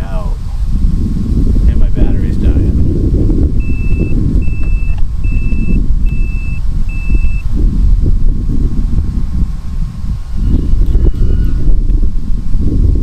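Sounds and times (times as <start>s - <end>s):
low wind rumble on microphone: 0.0s - 13.0s
high-pitched electronic warning beeps: 3.6s - 7.5s, 10.1s - 11.7s.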